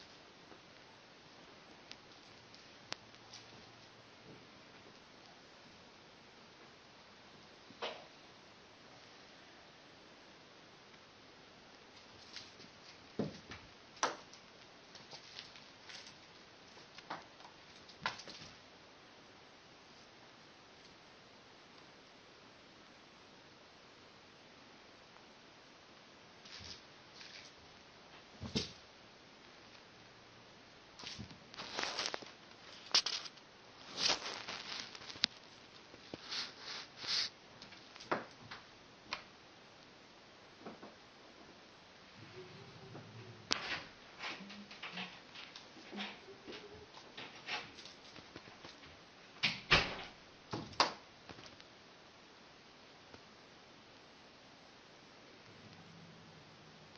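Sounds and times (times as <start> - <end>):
cat rustling and scuffing: 31.0 - 38.1.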